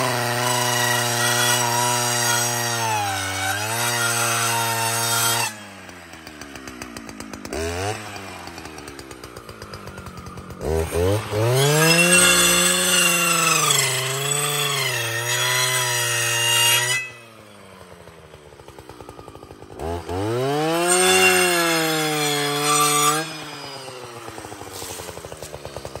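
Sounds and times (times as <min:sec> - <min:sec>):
brushcutter engine revving: 0:00.0 - 0:26.0
saw blade cutting wood: 0:00.0 - 0:26.0.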